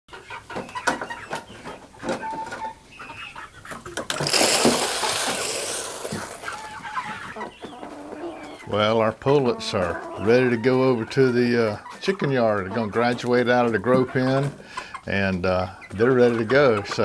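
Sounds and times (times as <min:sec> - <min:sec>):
chicks peeping: 0:00.1 - 0:17.0
feed pouring into plastic tray: 0:04.1 - 0:06.7.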